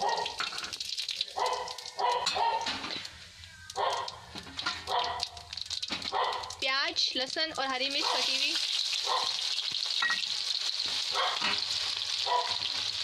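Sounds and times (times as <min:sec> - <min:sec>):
dog barking: 0:00.0 - 0:00.4, 0:01.3 - 0:02.7, 0:03.8 - 0:04.2, 0:04.9 - 0:05.4, 0:06.1 - 0:06.5, 0:08.0 - 0:08.4, 0:09.0 - 0:09.4, 0:11.1 - 0:11.5, 0:12.2 - 0:12.6
seeds crackling in hot oil: 0:00.0 - 0:13.0.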